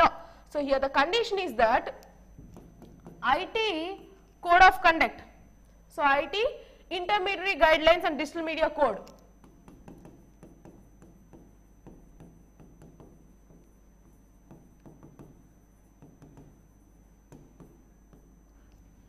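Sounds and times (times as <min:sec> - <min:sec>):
pen tapping on glass screen: 0:02.4 - 0:03.3, 0:09.0 - 0:18.4.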